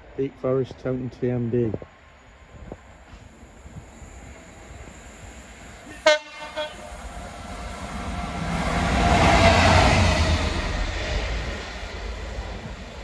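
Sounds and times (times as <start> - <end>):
diesel locomotive passing: 1.9 - 13.0
locomotive horn blasts: 5.9 - 7.0.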